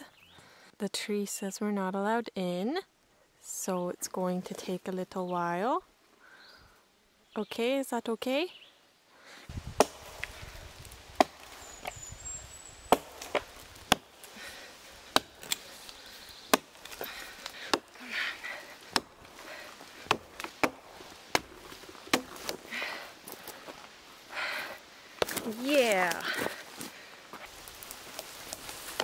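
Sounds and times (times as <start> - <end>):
axe chopping a log: 9.8 - 10.4, 11.2 - 11.6, 12.8 - 14.3, 15.0 - 15.9, 16.5 - 22.7, 25.2 - 25.6.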